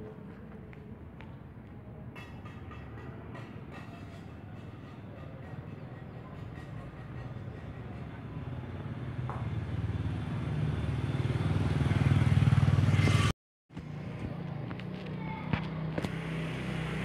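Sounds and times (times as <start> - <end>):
engine running steadily: 11.9 - 17.0.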